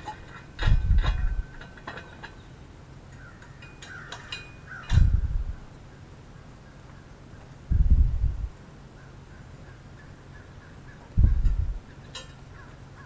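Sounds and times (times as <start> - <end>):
metal clinks and knocks: 0.0 - 2.5, 3.4 - 5.6, 11.4 - 12.5
low thuds: 0.6 - 1.6, 4.9 - 5.7, 7.7 - 8.5, 11.1 - 11.8.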